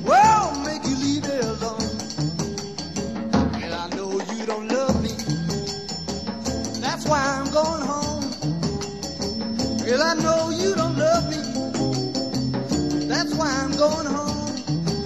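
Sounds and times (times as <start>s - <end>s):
person singing: 0.0s - 2.0s, 3.5s - 5.6s, 9.8s - 12.0s, 12.9s - 15.0s
electric blues band playing: 0.0s - 15.0s.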